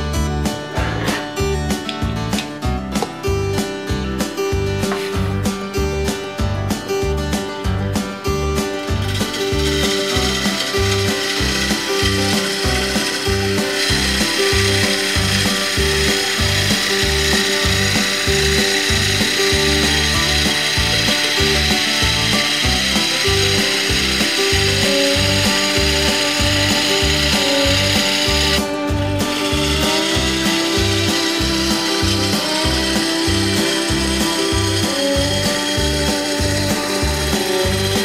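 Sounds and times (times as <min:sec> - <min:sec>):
background music with beat: 0:00.0 - 0:38.0
gouge cutting on wood lathe: 0:08.6 - 0:38.0.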